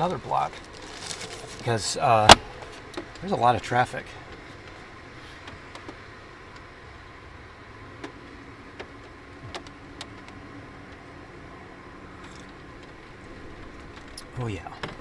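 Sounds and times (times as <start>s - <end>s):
street traffic passing: 0.0s - 15.0s.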